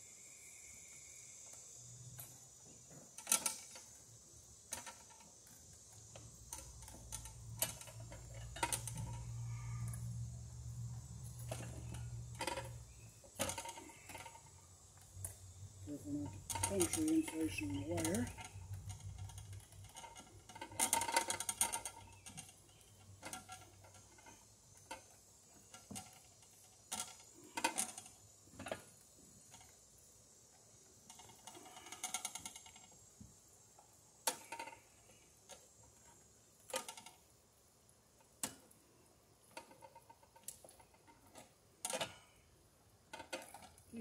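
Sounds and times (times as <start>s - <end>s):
electrical wires clicking and scraping: 1.4s - 42.4s, 43.0s - 44.0s
rattling scrapes: 15.9s - 28.8s.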